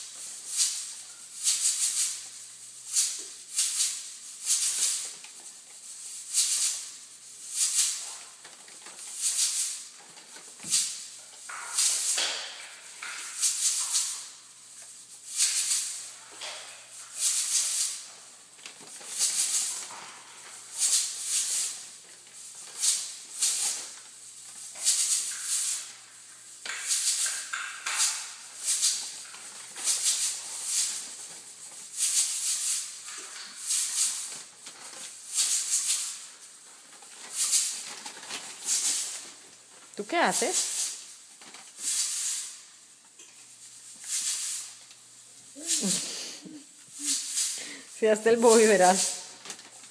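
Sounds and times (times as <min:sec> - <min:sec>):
plastic bag of cereal crinkling: 0:14.8 - 0:46.1, 0:46.9 - 0:49.9.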